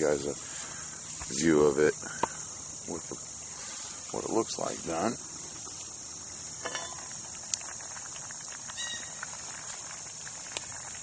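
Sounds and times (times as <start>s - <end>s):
crickets chirring: 0.0s - 11.0s
metal lid clinking: 6.6s - 7.1s.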